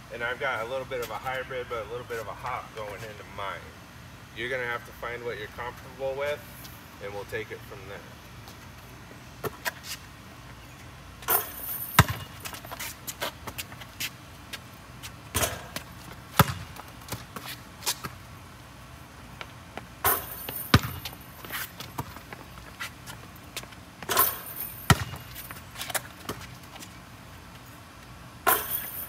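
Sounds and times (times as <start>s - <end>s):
basketball bouncing on concrete: 11.2s - 13.9s, 15.3s - 18.2s, 19.4s - 26.5s, 28.5s - 29.0s
basketball clanging on rim: 11.3s - 12.4s, 15.3s - 15.8s, 20.0s - 21.2s, 24.1s - 25.6s, 28.4s - 29.0s.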